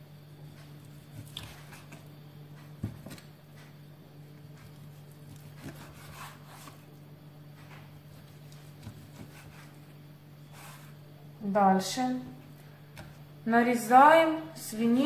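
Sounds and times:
low steady hum: 0.0 - 15.0
knife slicing meat: 0.8 - 2.1, 4.6 - 6.8, 8.1 - 9.9.

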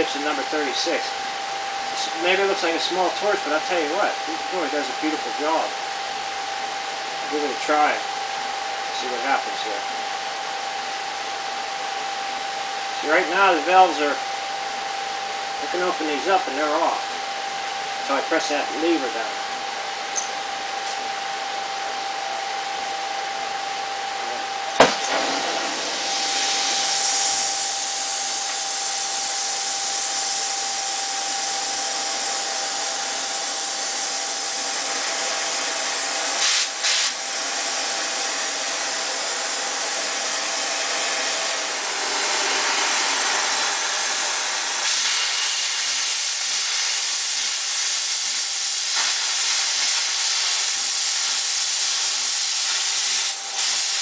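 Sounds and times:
torch flame lighting pop: 24.7 - 26.6
torch flame hissing: 24.8 - 54.0.

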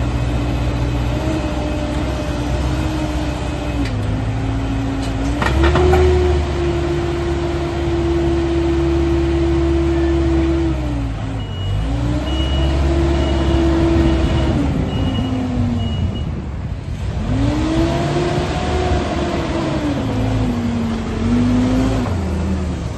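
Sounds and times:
diesel engine revving: 0.0 - 22.9
reversing alarm beeps: 11.4 - 16.3.

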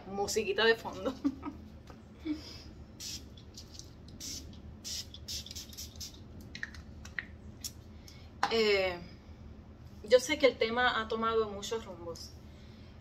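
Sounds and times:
spray bottle hissing spritzes: 4.2 - 6.2.

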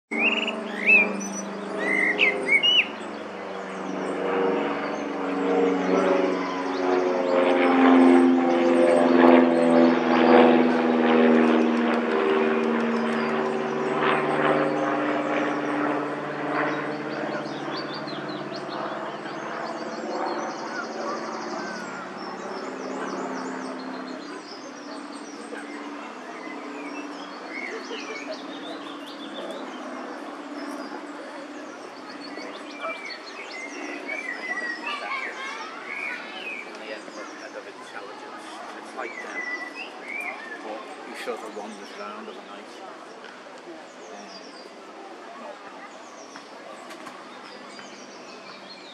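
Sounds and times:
bird chirps: 0.1 - 3.7
distant engine drone: 0.1 - 48.9.

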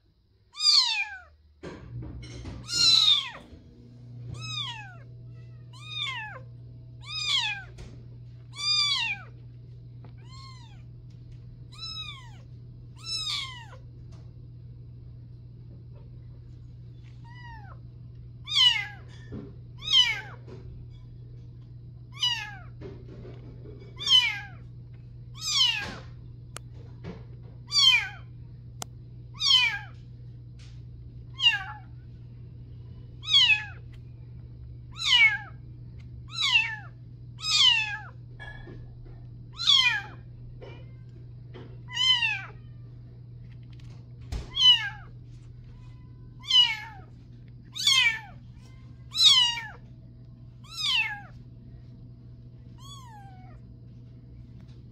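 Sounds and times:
kitten mewing: 0.5 - 1.3, 2.6 - 3.5, 4.3 - 7.8, 8.5 - 9.4, 10.2 - 10.9, 11.7 - 13.8, 17.2 - 17.8, 18.4 - 19.1, 19.8 - 20.4, 22.1 - 22.7, 24.0 - 24.6, 25.4 - 26.0, 27.7 - 28.3, 29.4 - 30.0, 31.4 - 31.9, 33.2 - 33.8, 34.9 - 35.6, 36.3 - 38.2, 39.5 - 40.2, 41.9 - 42.7, 44.4 - 45.1, 46.4 - 47.1, 47.7 - 48.4, 49.1 - 49.8, 50.6 - 51.3, 52.8 - 53.6
low hum: 1.6 - 54.9.

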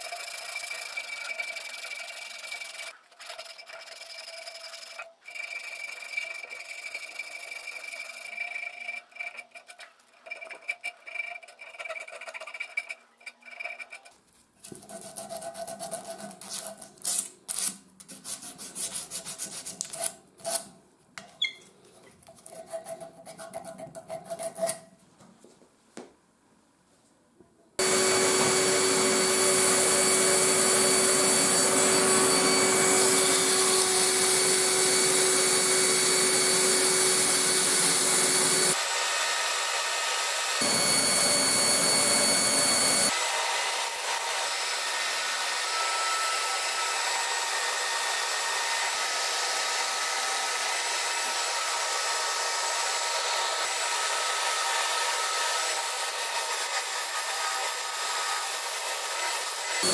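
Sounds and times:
sandpaper rasping on wood: 18.1 - 20.2
electric drill whining: 27.8 - 59.9.

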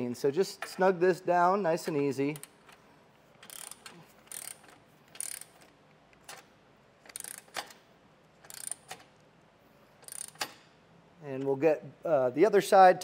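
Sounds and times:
cordless ratchet clicking: 3.4 - 7.8, 8.4 - 9.2, 10.0 - 10.7.

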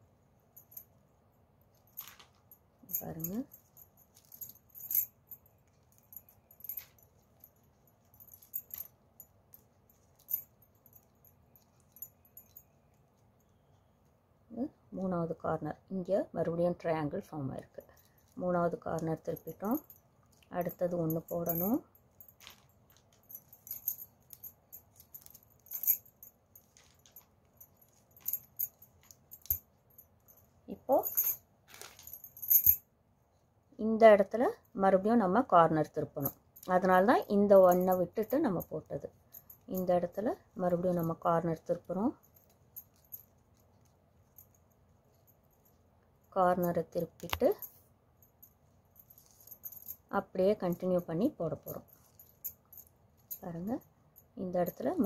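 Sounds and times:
plastic wire strands rustling: 22.3 - 26.0, 26.6 - 29.6, 31.2 - 32.8.

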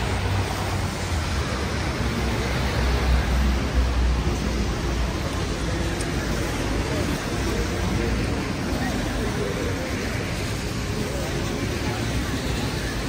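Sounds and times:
traffic on wet street: 0.0 - 13.0.

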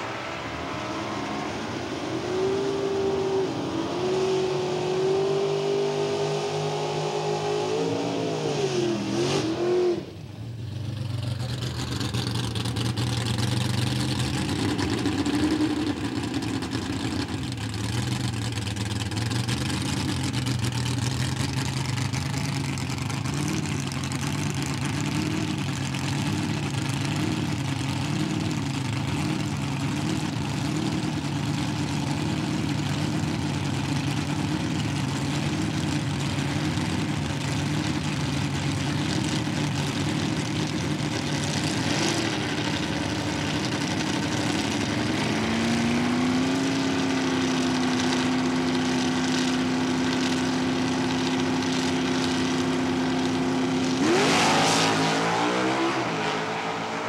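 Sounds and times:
race car engine at high revs: 0.0 - 10.3, 11.2 - 57.0
car engine idling: 10.2 - 54.0.

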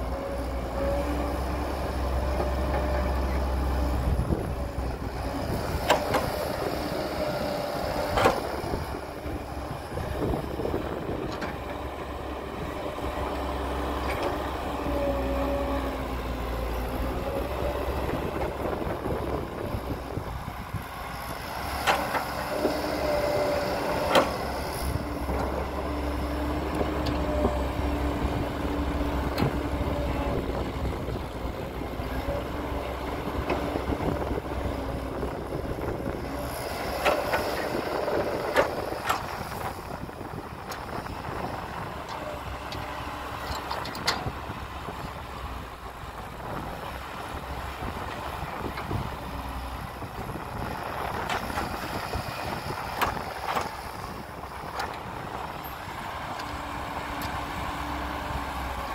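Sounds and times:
heavy machinery diesel engines: 0.0 - 58.9.

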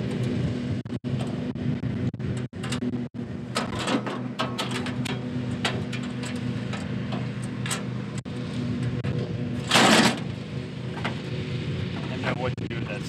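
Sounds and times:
steady low hum: 0.0 - 13.0
metal hood clattering down: 3.5 - 8.0, 9.6 - 10.4.

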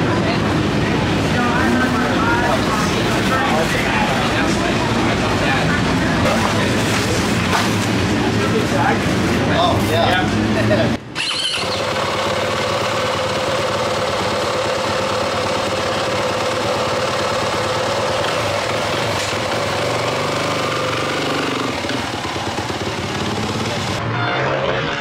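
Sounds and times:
motorcycle engine idling loudly: 11.2 - 24.0.

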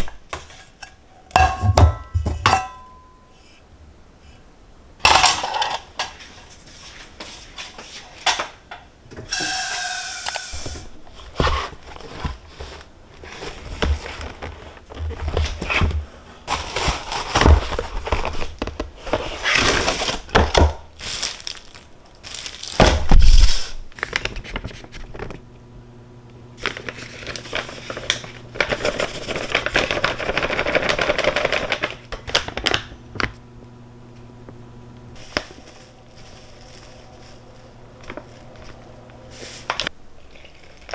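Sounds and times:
low steady hum: 0.0 - 7.1, 19.9 - 40.9
rustling or scraping: 5.4 - 8.3, 9.3 - 20.3, 35.2 - 40.0.

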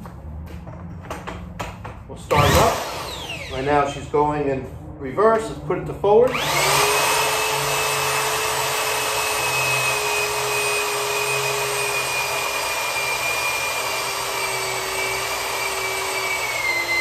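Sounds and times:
electric motor whine: 2.3 - 3.7, 6.3 - 17.0.

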